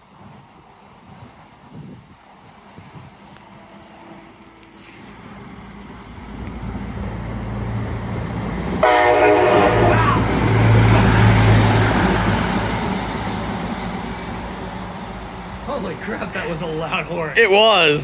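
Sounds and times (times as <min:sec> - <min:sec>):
rail vehicle passing: 0:00.0 - 0:18.0
short horn blast: 0:08.8 - 0:10.3.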